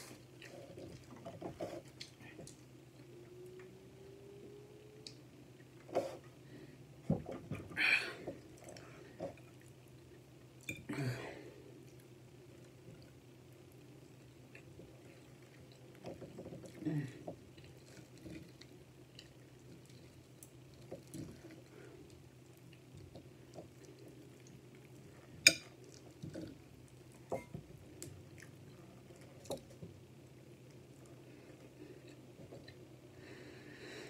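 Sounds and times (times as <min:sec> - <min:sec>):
person chewing food: 0:11.7 - 0:33.2.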